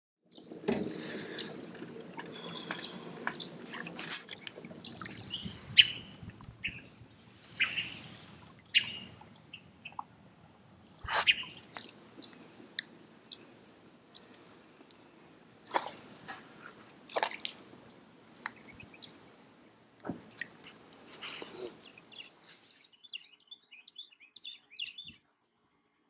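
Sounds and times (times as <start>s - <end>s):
water lapping around boat: 0.4s - 6.7s, 11.0s - 22.7s.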